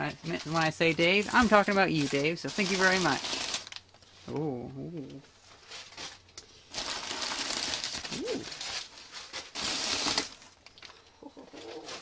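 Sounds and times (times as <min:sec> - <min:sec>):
newspaper rustling and crinkling: 0:00.0 - 0:04.2, 0:05.4 - 0:11.0
voice humming: 0:04.3 - 0:05.3, 0:08.1 - 0:08.5.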